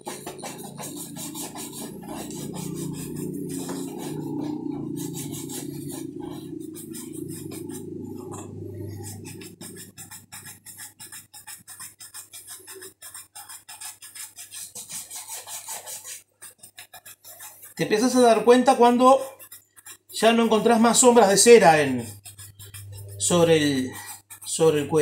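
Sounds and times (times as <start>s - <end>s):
shoe brush buffing leather: 0.0s - 25.0s
low steady drone: 0.6s - 9.9s.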